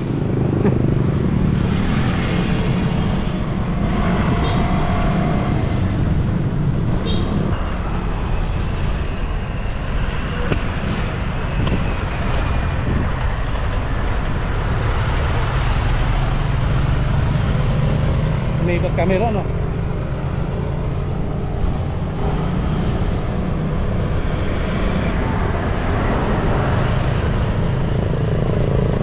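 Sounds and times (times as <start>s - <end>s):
road traffic: 0.0s - 29.0s
wind on microphone: 1.2s - 18.6s.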